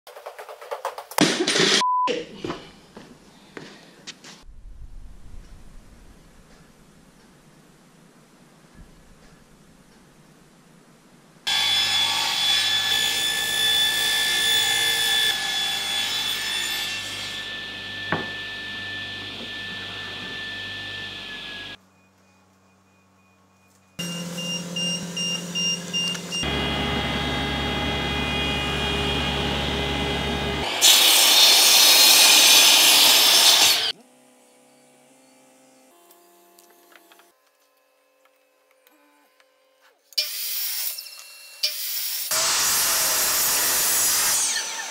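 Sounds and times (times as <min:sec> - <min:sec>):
mitre saw cutting plywood: 0:11.5 - 0:21.8, 0:24.0 - 0:44.9
table saw whining: 0:11.5 - 0:21.8, 0:24.0 - 0:44.9.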